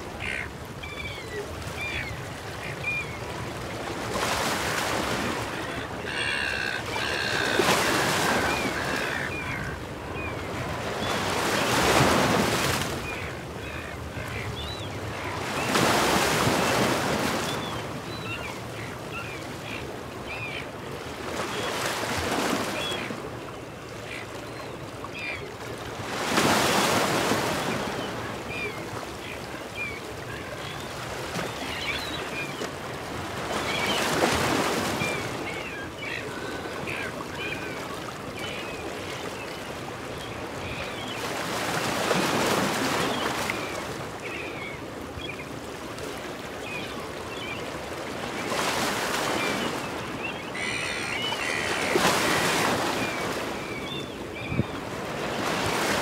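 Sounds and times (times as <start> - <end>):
seagulls calling: 0.1 - 3.4, 4.2 - 20.7, 33.3 - 45.5, 48.5 - 56.0
waves breaking on rocky shore: 3.8 - 13.3, 51.7 - 56.0.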